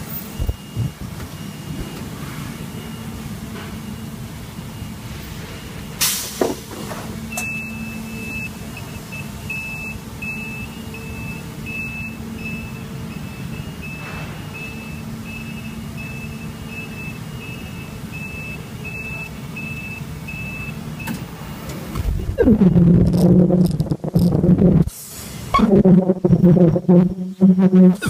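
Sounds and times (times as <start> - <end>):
factory machinery hum: 0.0 - 28.0
air release hiss: 6.0 - 6.6, 24.9 - 25.5.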